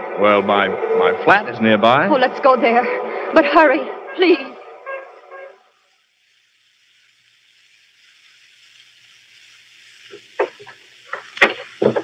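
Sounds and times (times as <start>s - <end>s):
recording hiss: 4.3s - 12.0s.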